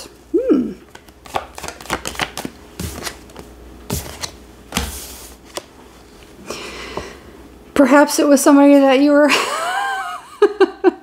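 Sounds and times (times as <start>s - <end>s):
cards shuffling: 0.8s - 5.7s.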